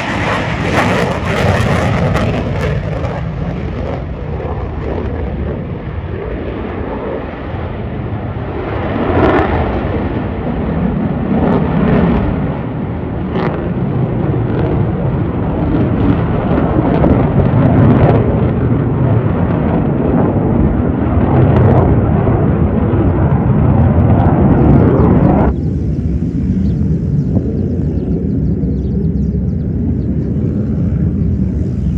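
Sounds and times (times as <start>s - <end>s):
jet engine rumble with crackle: 0.0s - 31.9s.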